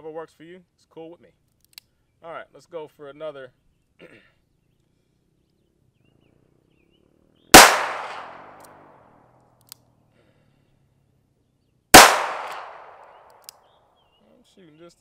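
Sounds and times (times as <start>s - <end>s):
revolver shots: 7.6s - 8.7s, 12.0s - 13.3s.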